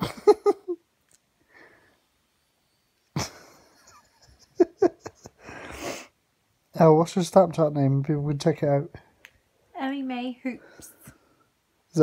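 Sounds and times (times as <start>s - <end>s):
person laughing breathlessly: 3.2s - 6.1s.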